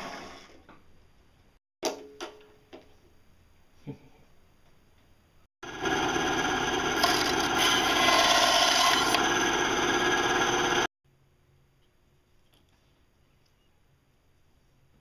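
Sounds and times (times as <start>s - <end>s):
bandsaw cutting plastic: 6.8s - 9.3s.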